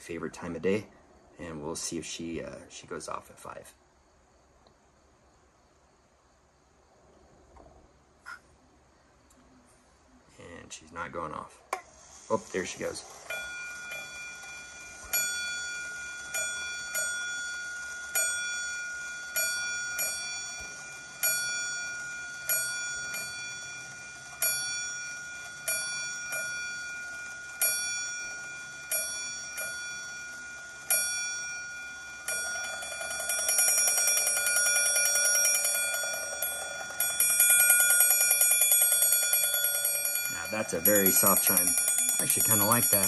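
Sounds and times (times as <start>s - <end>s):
alarm clock bell ringing: 12.3s - 43.0s.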